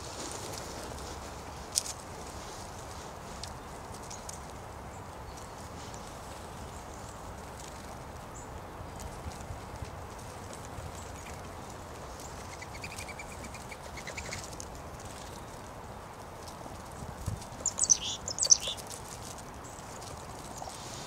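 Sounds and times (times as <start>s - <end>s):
songbird trill: 10.8s - 21.0s
high bird chirps: 17.6s - 18.8s.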